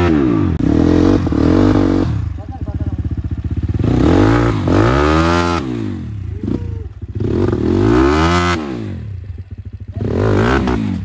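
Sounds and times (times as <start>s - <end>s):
dirt bike engine revving and idling: 0.0s - 11.0s.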